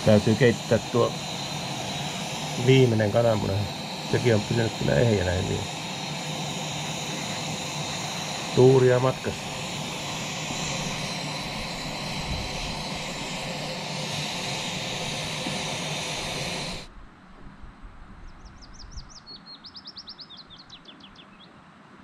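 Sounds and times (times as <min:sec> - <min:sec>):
camping stove burner hissing: 0:00.0 - 0:17.0
bird singing high trill: 0:18.4 - 0:21.5.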